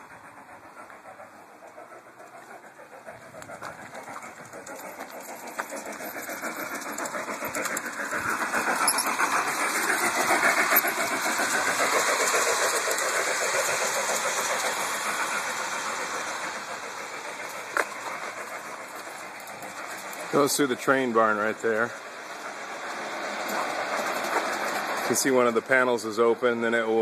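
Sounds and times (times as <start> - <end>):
model train rattling on track: 0.0 - 27.0.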